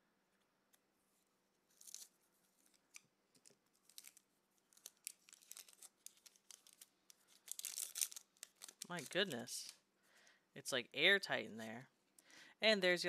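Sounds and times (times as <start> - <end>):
foil wrapper crinkling: 1.7 - 9.8
scissors snipping foil: 2.7 - 9.7.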